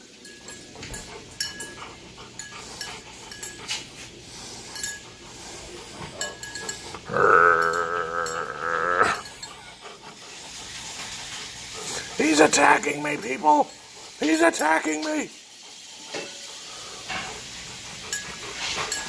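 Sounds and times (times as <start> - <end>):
puppy howling call: 7.1 - 9.2.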